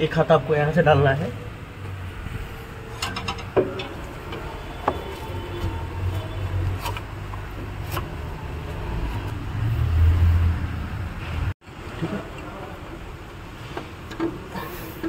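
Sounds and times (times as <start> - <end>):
metal knocking against metal: 3.0 - 5.7.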